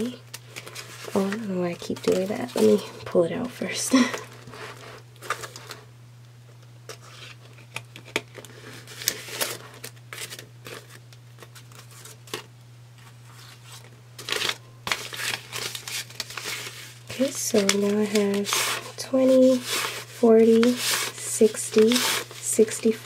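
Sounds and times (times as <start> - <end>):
banknotes rustling: 0.0 - 3.0, 6.9 - 23.0
plastic pouch crinkling: 13.5 - 22.4.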